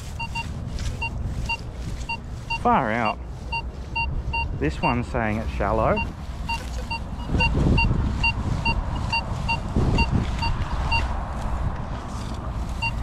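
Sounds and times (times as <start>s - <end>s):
steady low rumble: 0.0s - 13.0s
metal detector short beeps: 0.2s - 2.7s, 6.0s - 8.4s.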